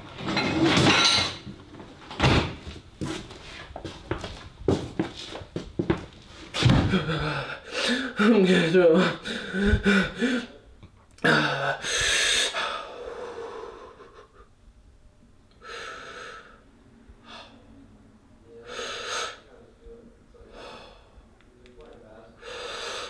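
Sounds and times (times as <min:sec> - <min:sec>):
man breathing hard: 0:06.7 - 0:10.6, 0:11.3 - 0:14.5, 0:15.6 - 0:17.8, 0:18.6 - 0:19.5, 0:20.4 - 0:21.3, 0:22.4 - 0:23.0.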